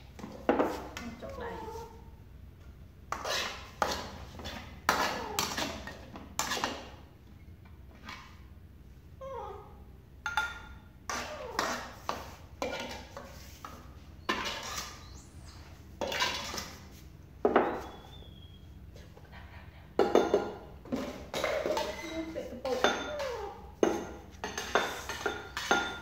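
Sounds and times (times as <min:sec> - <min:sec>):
metal spatula scraping wok: 0:03.1 - 0:06.8, 0:11.6 - 0:15.2.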